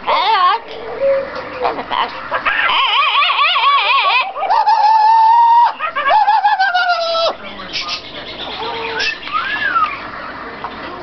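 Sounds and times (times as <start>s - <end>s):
parrot calling loudly: 1.6s - 10.1s.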